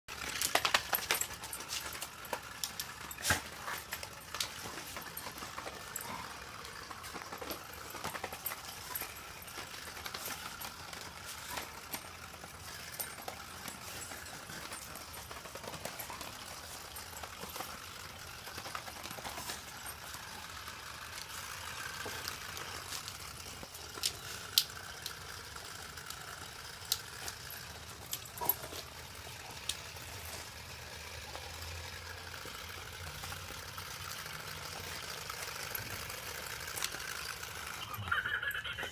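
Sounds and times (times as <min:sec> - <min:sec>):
plastic toy clicking on concrete: 0:00.1 - 0:38.1
toy giggle: 0:37.8 - 0:38.9.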